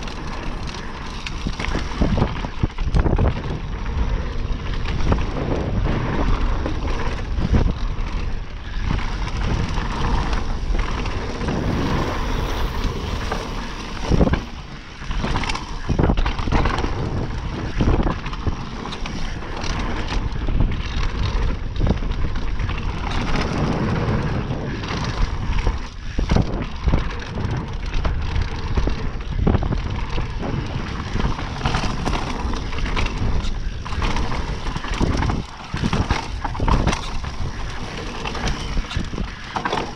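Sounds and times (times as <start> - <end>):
bike rattling over bumps: 0.0 - 39.9
bike tyres rolling over dirt: 0.0 - 39.9
wind rushing over microphone: 0.0 - 39.9.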